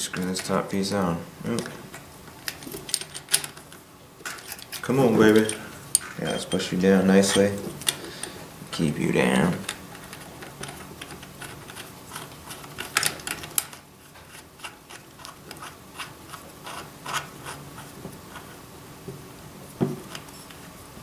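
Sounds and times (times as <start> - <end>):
fingers clicking and rubbing parts: 9.6 - 18.6.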